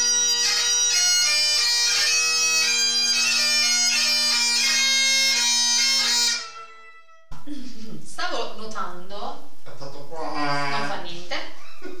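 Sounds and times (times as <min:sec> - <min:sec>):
bagpipe chanter melody: 0:00.0 - 0:07.3
bagpipe drone: 0:00.0 - 0:07.3.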